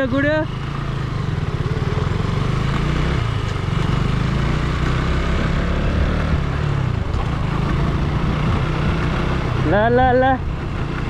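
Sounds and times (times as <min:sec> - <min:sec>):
motorbike engine running: 0:00.0 - 0:11.0
wind and road noise: 0:00.0 - 0:11.0.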